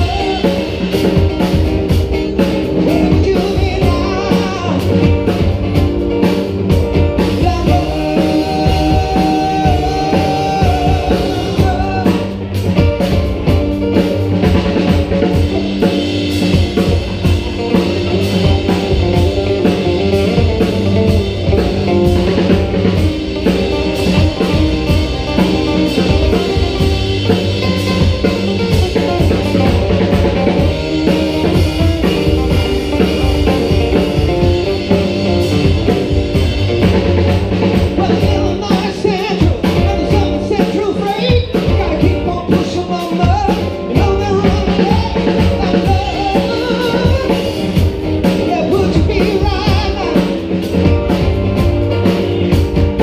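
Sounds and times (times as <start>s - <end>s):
lead vocal singing: 0.0s - 1.6s, 2.4s - 5.5s, 7.0s - 12.8s, 36.7s - 50.6s
live rock band playing: 0.0s - 53.0s.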